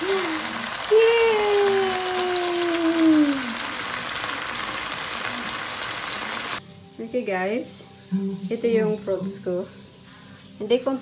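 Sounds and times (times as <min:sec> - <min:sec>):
meat sizzling in a wok: 0:00.0 - 0:08.1.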